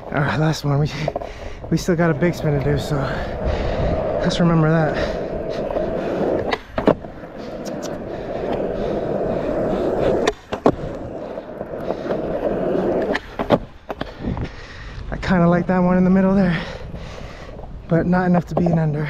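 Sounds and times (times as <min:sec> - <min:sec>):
skateboard wheels rolling on pavement: 0:00.0 - 0:19.0
skateboard popping and landing: 0:04.9 - 0:14.2.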